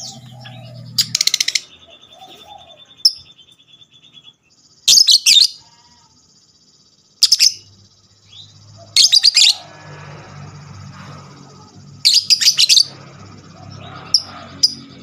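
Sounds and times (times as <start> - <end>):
lovebird shrill chattering: 0.0 - 3.3, 4.8 - 5.8, 8.3 - 9.8, 11.4 - 15.0
high-pitched bird trill: 0.0 - 15.0.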